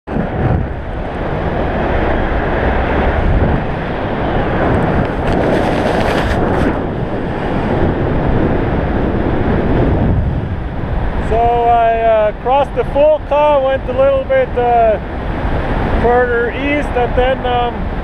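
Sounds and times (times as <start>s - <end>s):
wind rushing across microphone: 0.1s - 18.0s.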